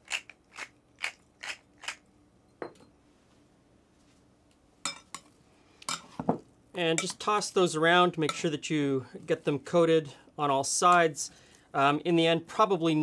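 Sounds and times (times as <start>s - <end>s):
pepper mill grinding: 0.0s - 2.0s.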